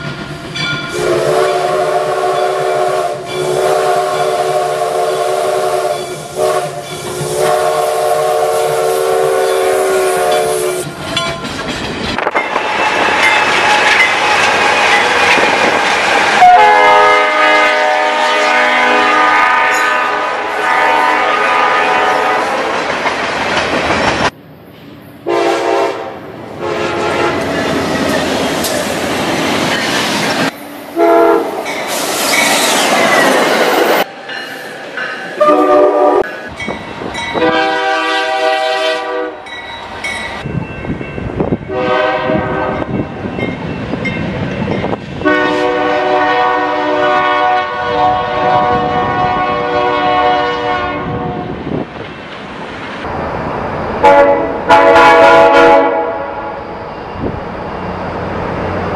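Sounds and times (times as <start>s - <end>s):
passing train rumble on rails: 0.0s - 58.9s
locomotive air horn chords: 0.9s - 10.9s, 16.4s - 22.8s, 25.2s - 27.5s, 31.0s - 31.6s, 35.4s - 36.3s, 37.4s - 39.4s, 41.7s - 42.9s, 45.2s - 51.5s, 54.0s - 56.6s.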